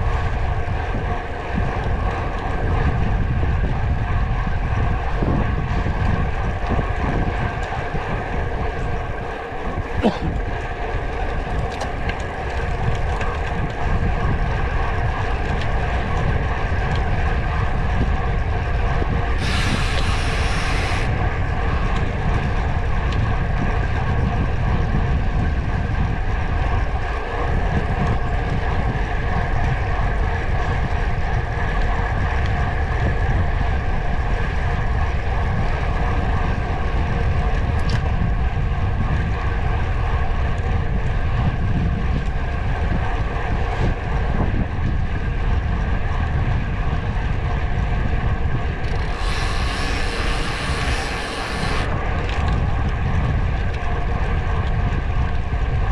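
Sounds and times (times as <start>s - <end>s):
ride drone: 0.0s - 55.9s
wind rumbling over microphone: 0.0s - 55.9s
bright hiss: 19.4s - 21.1s, 49.0s - 51.9s.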